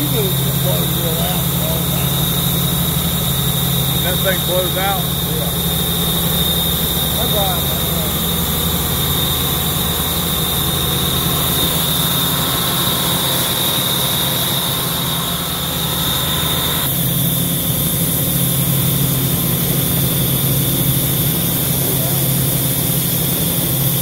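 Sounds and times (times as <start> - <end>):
air compressor running: 0.0 - 24.0.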